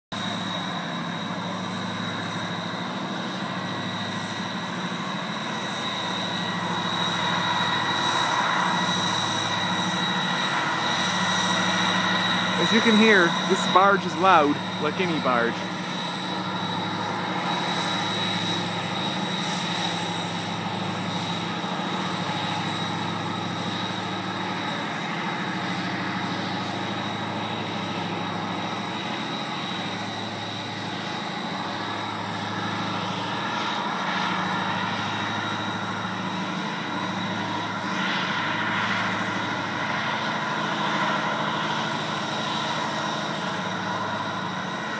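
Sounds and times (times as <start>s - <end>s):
low diesel engine drone: 0.1s - 44.9s.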